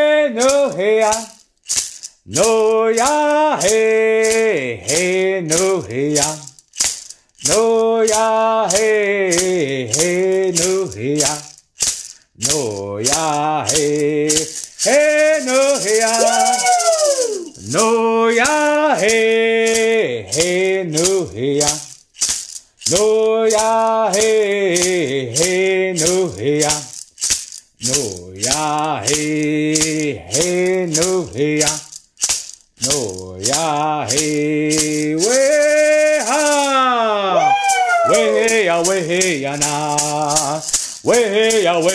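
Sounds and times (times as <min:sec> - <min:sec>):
man singing: 0:00.0 - 0:01.4, 0:02.3 - 0:06.6, 0:07.4 - 0:11.6, 0:12.4 - 0:22.0, 0:22.9 - 0:27.0, 0:27.8 - 0:32.0, 0:32.8 - 0:41.9
hand rattle shaken: 0:00.0 - 0:41.9.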